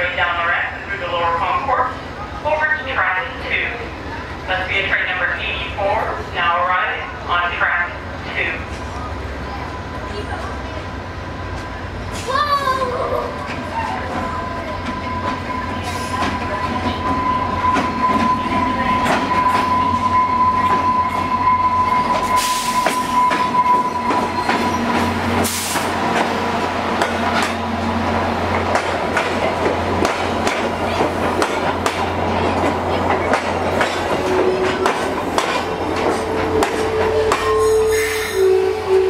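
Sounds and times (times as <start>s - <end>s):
diesel locomotive engine running: 0.0s - 39.0s
steady high tone: 16.5s - 25.0s.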